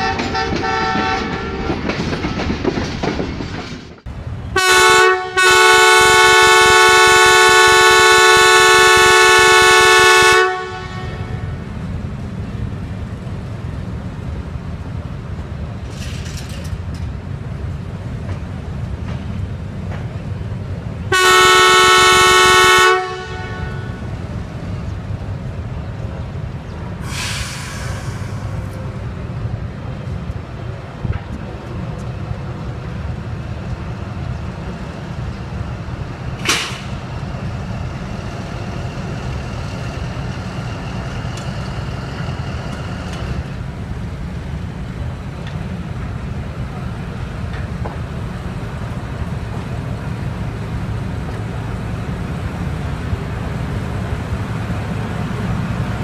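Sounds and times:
locomotive horn blast: 0.0s - 1.6s, 4.6s - 11.6s, 21.1s - 24.1s
locomotive engine rumble: 0.0s - 56.0s
brief hiss: 27.0s - 28.8s.

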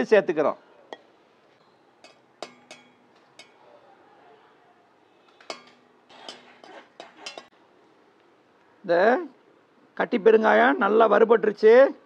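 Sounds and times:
ladle clinking and scraping in pan: 0.9s - 3.7s, 5.4s - 7.5s.

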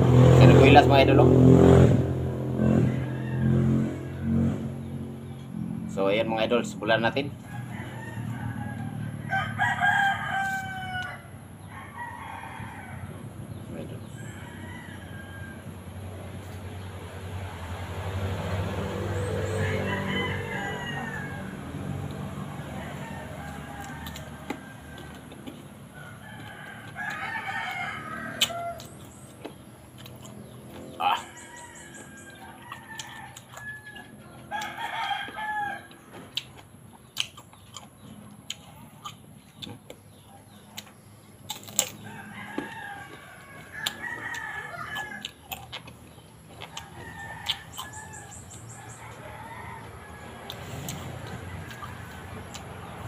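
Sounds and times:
rooster crowing: 2.4s - 4.7s, 7.0s - 29.3s, 30.0s - 36.4s, 41.4s - 45.9s, 46.5s - 53.0s
biting and chewing crunches: 21.0s - 53.0s.

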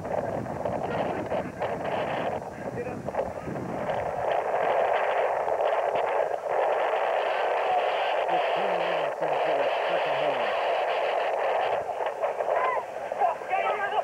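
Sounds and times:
rushing outdoor noise: 0.0s - 14.0s.

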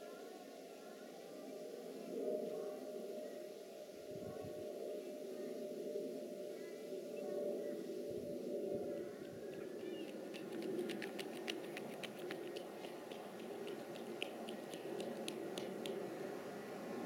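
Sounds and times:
distant jet engines humming: 4.6s - 17.0s.

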